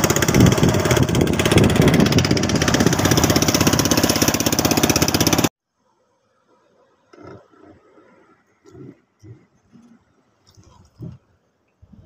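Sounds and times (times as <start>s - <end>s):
boat engine chugging: 0.0s - 5.5s.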